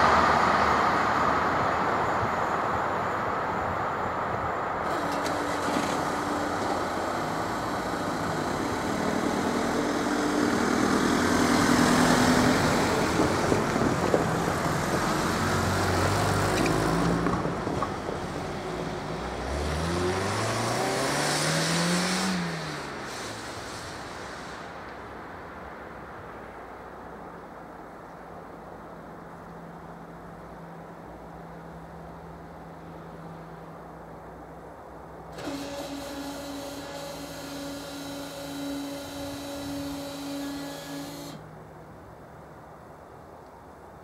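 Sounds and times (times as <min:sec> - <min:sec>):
van passing: 0:00.0 - 0:44.0
car accelerating: 0:04.8 - 0:17.5, 0:18.1 - 0:24.6, 0:35.4 - 0:41.4.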